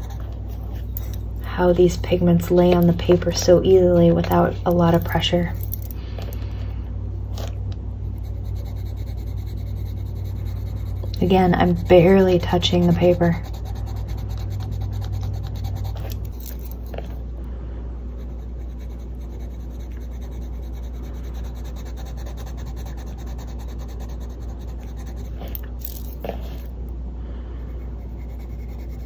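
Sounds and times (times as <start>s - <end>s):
pencil scratching on paper: 0.0s - 1.1s, 8.1s - 16.8s, 18.1s - 26.7s, 27.6s - 29.0s
steady low hum: 0.0s - 29.0s.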